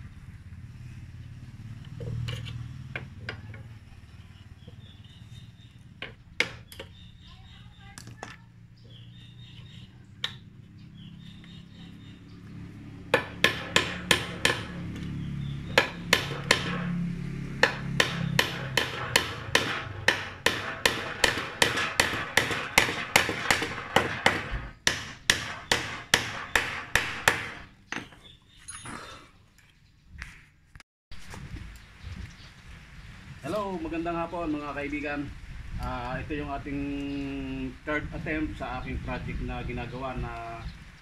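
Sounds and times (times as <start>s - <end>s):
hammer striking steel rod: 13.1s - 14.8s, 15.8s - 17.0s, 17.6s - 27.6s.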